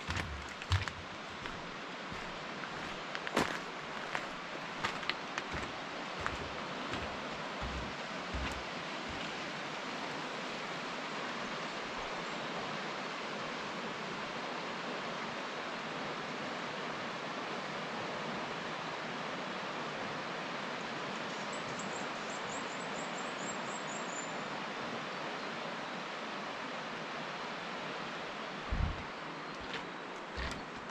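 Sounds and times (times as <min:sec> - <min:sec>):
river water rushing: 0:00.0 - 0:17.2.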